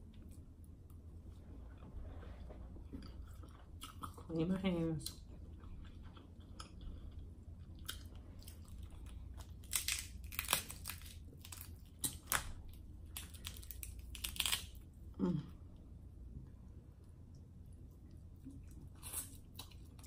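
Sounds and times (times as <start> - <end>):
crab shells cracking: 9.4 - 14.8.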